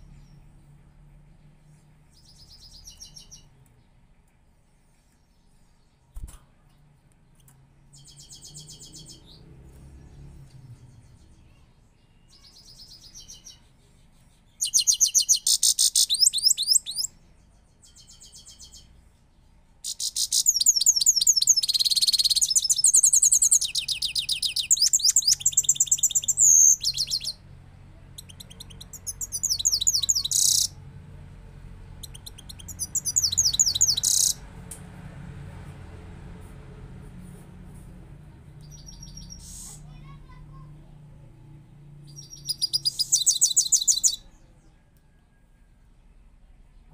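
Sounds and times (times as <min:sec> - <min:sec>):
finch singing high twittering trills: 0:14.5 - 0:17.1, 0:19.8 - 0:27.4, 0:28.2 - 0:30.7, 0:32.0 - 0:34.4, 0:38.6 - 0:40.0, 0:42.1 - 0:44.3.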